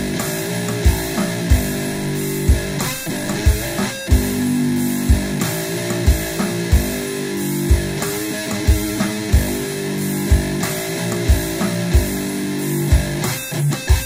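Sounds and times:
distorted guitar riff: 0.0 - 14.0
kick drum beat: 0.8 - 4.4, 5.1 - 5.4, 6.1 - 7.0, 7.7 - 8.0, 10.3 - 10.6.

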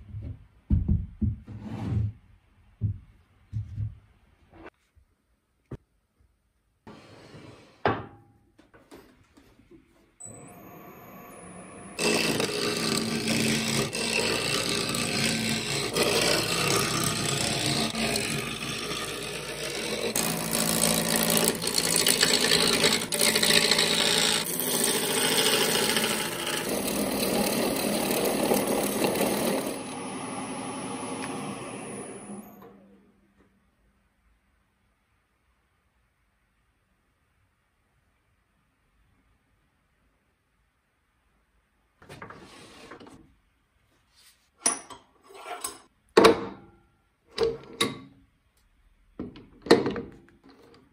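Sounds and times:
wood lathe motor hum: 10.2 - 32.8
gouge scraping spinning wood: 11.1 - 32.4.

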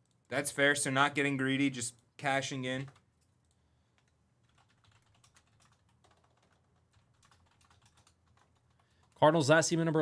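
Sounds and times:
typing on computer keyboard: 2.8 - 9.2.

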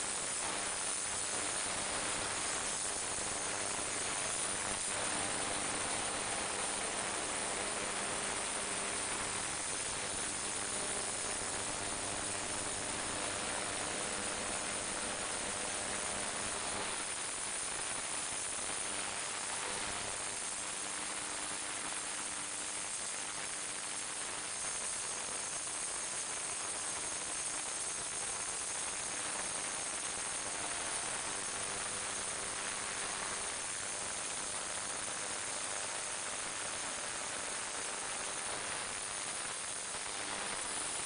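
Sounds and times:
faint hum: 0.0 - 21.9
ultrasonic cleaner hissing: 0.0 - 41.0.

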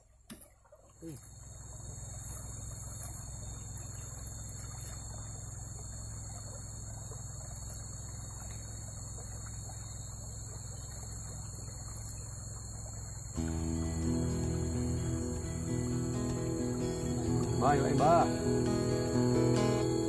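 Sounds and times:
high-pitched drone: 13.4 - 20.0
low hum: 13.4 - 20.0.

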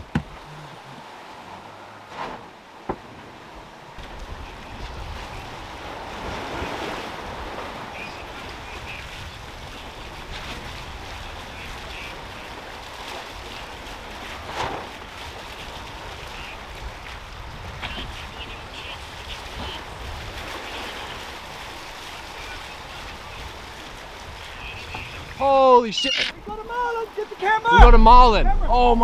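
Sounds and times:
sea water rushing along hulls: 0.0 - 29.0
wind buffeting microphone: 15.1 - 18.6, 27.7 - 29.0.

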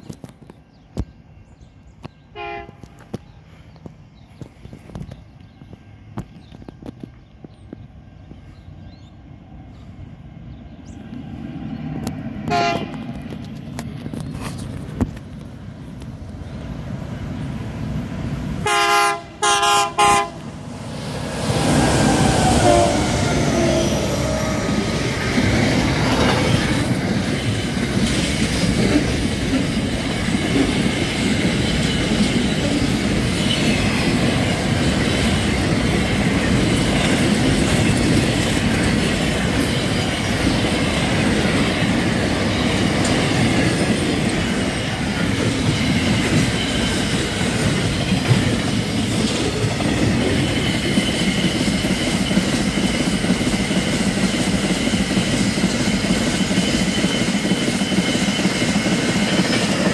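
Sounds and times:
train rumble and wheel clatter: 0.0 - 59.9
locomotive horn blasts: 2.4 - 2.9, 12.5 - 13.0, 18.6 - 20.5, 22.5 - 23.8.

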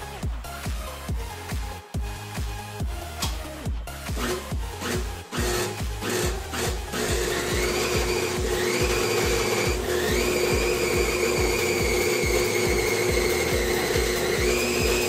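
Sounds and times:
stand mixer motor humming: 4.2 - 15.0.

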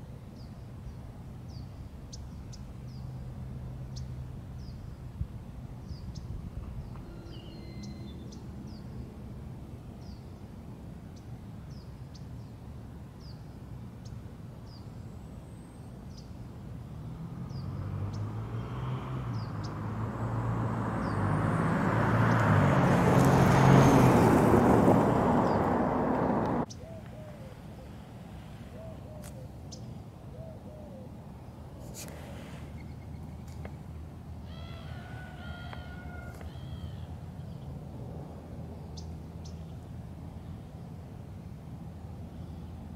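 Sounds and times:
motor vehicle passing: 16.8 - 26.7.

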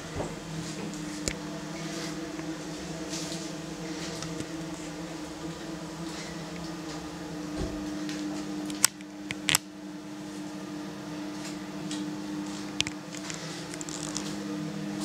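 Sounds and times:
extractor fan humming: 0.0 - 15.0.

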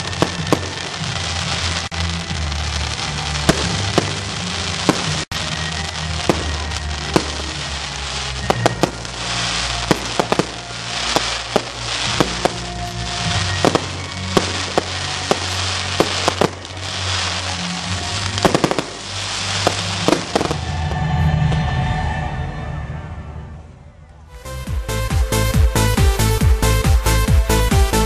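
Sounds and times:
fireworks crackling: 0.0 - 21.7, 24.4 - 28.0
fireworks bangs: 0.0 - 21.8
background music: 0.0 - 28.0.

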